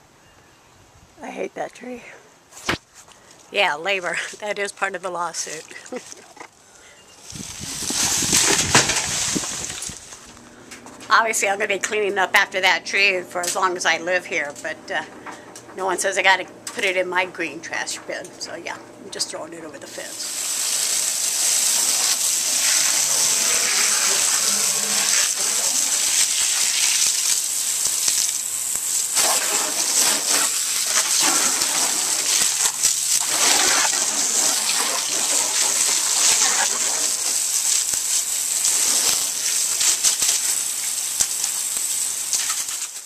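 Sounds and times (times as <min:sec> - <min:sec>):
hose water spraying on wood: 0:07.2 - 0:10.4, 0:19.8 - 0:43.0.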